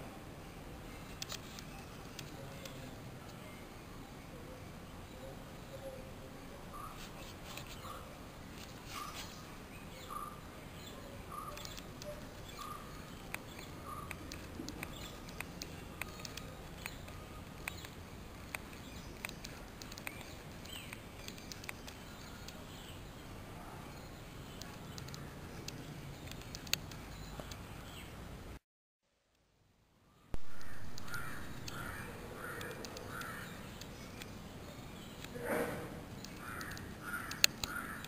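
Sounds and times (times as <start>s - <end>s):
sharp ticks and clicks: 11.4s - 22.6s, 24.5s - 27.7s, 30.4s - 34.4s, 36.1s - 38.0s.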